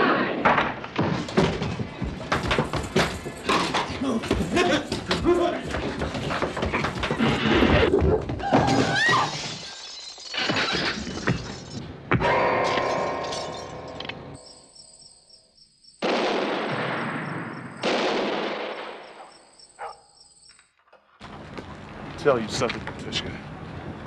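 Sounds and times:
high pulsing chirp: 0:13.6 - 0:16.0, 0:19.1 - 0:20.8.

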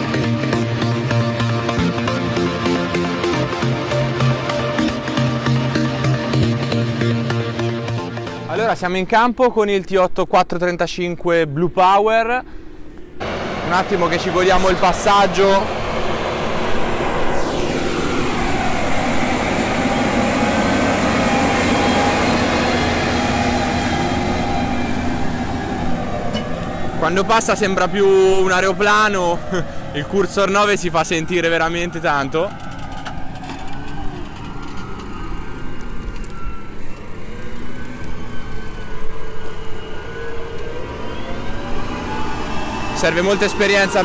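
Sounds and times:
tractor diesel engine drone: 0:00.0 - 0:08.6, 0:12.7 - 0:44.0
whine falling in pitch: 0:13.0 - 0:44.0.

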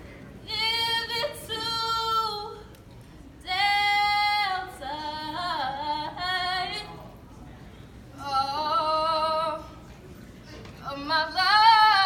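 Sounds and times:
women singing unaccompanied: 0:10.8 - 0:12.0.

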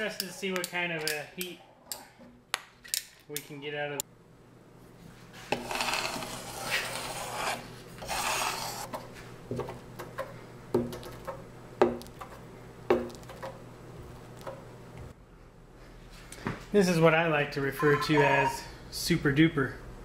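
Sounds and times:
scraper rasping: 0:05.5 - 0:08.9.

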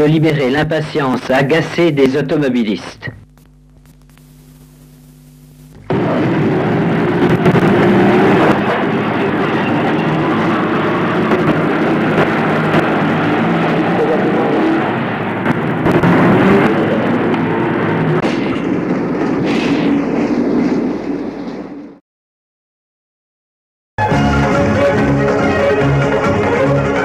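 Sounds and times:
crackles: 0:00.8 - 0:14.2, 0:15.4 - 0:17.4
loud vehicle noise: 0:05.8 - 0:22.0.

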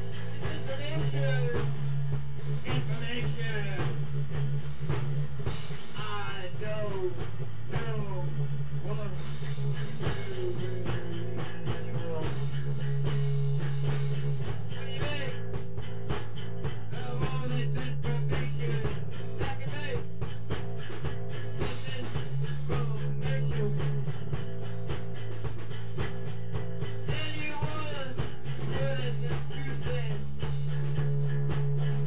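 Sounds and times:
electric guitar: 0:00.0 - 0:32.0
steady percussive beat: 0:00.0 - 0:32.0
sustained bass notes: 0:00.0 - 0:32.0.

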